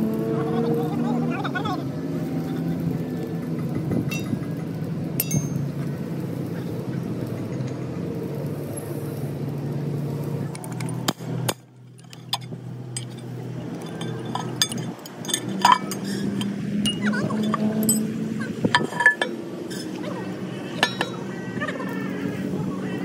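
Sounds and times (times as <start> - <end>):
light metallic clinks: 5.2 - 5.9, 11.9 - 20.0, 20.8 - 21.2.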